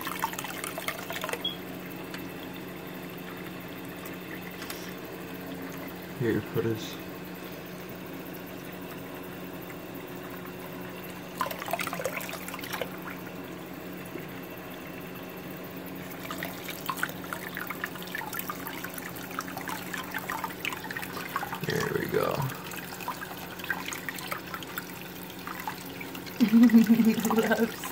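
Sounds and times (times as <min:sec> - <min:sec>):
tap water running into sink: 0:00.0 - 0:02.6, 0:09.6 - 0:13.4, 0:16.0 - 0:27.9
low steady hum: 0:00.0 - 0:27.9.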